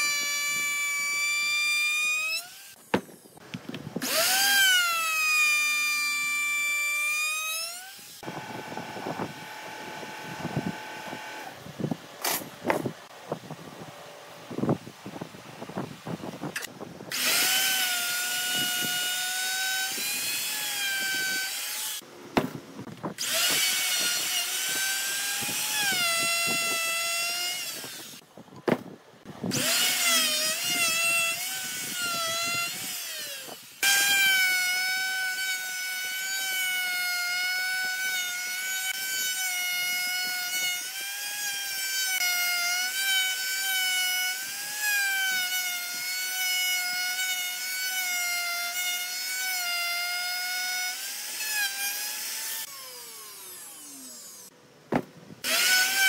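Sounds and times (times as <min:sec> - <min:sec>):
electric router whining: 0:03.5 - 0:05.8, 0:07.1 - 0:11.6, 0:50.3 - 0:54.5, 0:55.4 - 0:56.0.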